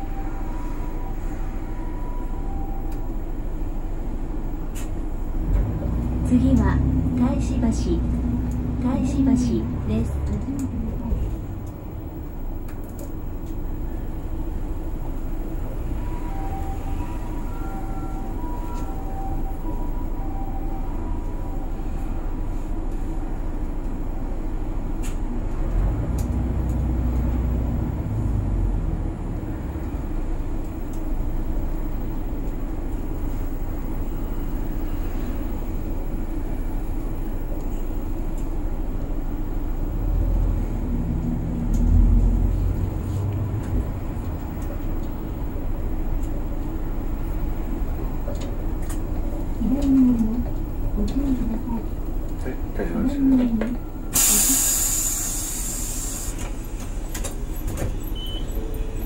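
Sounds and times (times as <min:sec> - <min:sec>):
bus engine and road rumble: 0:00.0 - 0:59.0
short beeps: 0:58.2 - 0:58.9.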